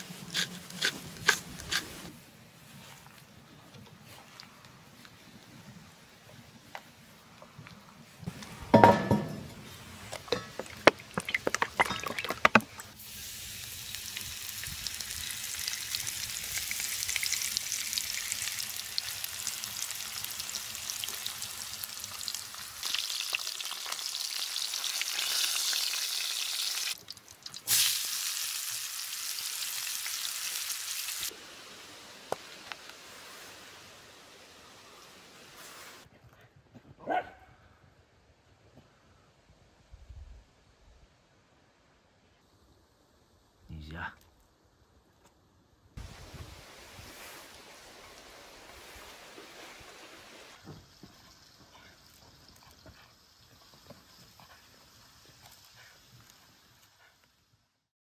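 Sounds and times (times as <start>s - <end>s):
food sizzling in frying pan: 13.0s - 35.1s.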